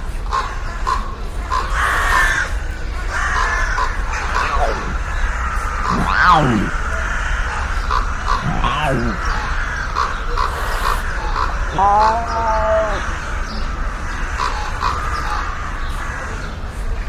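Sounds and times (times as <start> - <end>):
cat meow-like call: 5.9 - 6.8.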